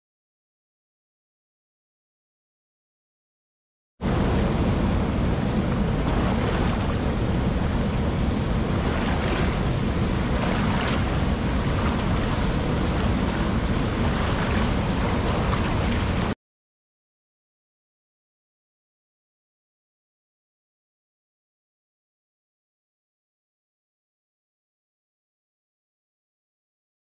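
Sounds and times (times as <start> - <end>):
river rapids rushing: 4.6 - 16.4.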